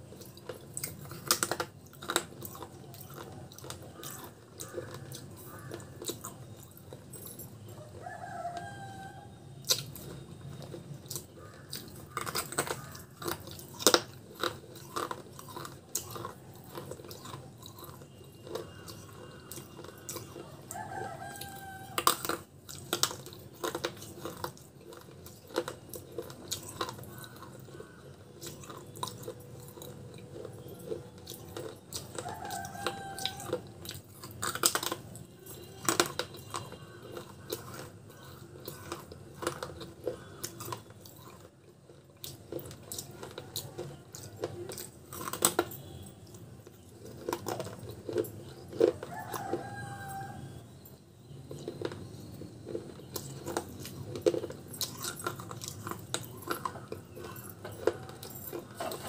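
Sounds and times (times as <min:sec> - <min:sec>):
chewing hard pot shards: 0:00.0 - 0:08.8, 0:09.6 - 0:50.8, 0:51.4 - 0:59.0
animal call: 0:32.0 - 0:33.8, 0:48.5 - 0:50.7.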